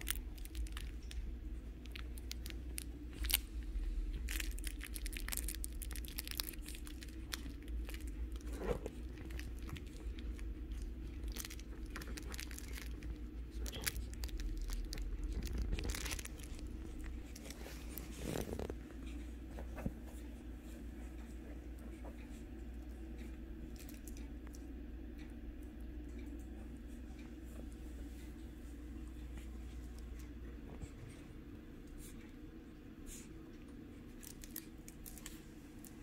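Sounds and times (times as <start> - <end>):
soft clicks and crinkles: 0.0 - 32.4, 33.1 - 36.0
steady low hum: 0.0 - 36.0
puppies scuffling on fabric: 11.0 - 22.7.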